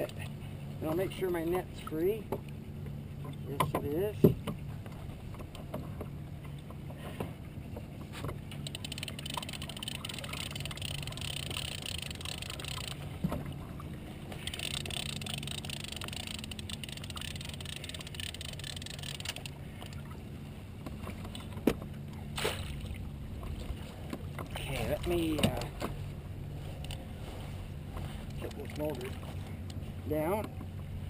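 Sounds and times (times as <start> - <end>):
low hum: 0.0 - 31.0
fishing reel clicking: 8.5 - 13.0, 14.4 - 20.0
fish splashing: 8.5 - 20.2, 22.3 - 23.8.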